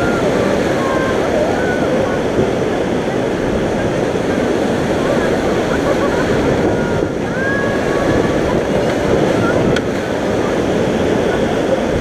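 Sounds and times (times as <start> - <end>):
river rapids rushing: 0.0 - 12.0.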